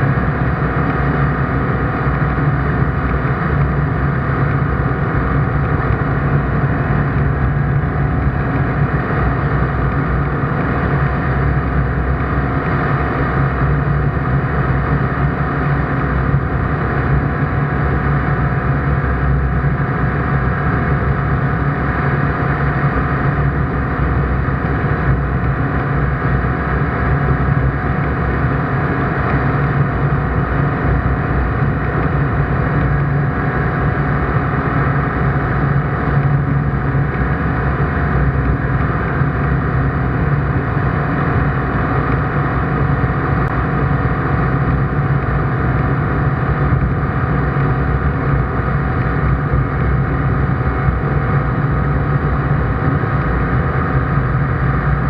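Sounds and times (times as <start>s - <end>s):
light aircraft engine and propeller droning: 0.0s - 55.0s.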